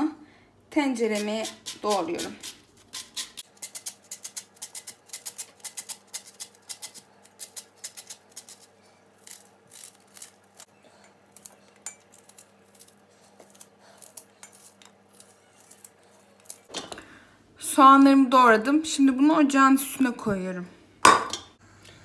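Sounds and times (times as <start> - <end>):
knife cutting onion: 1.0 - 10.7.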